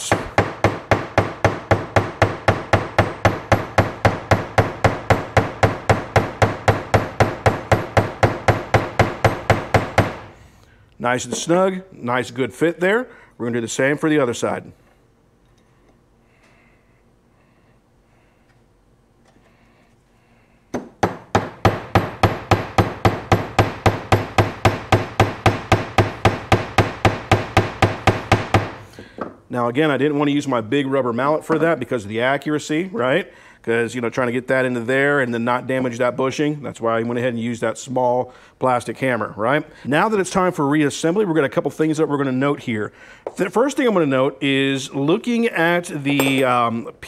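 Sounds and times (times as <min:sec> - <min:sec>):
small hammer tapping metal: 0:46.2 - 0:46.5.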